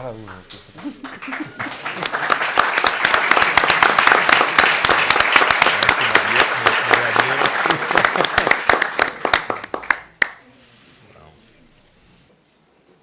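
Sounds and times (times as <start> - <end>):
crowd applauding: 0.3 - 10.4.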